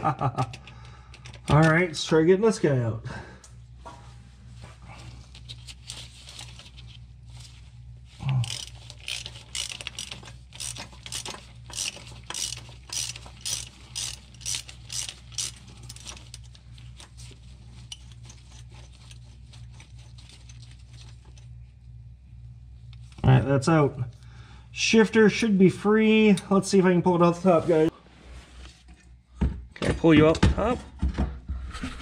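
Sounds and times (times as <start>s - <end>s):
hand ratchet ratcheting: 8.2s - 16.6s.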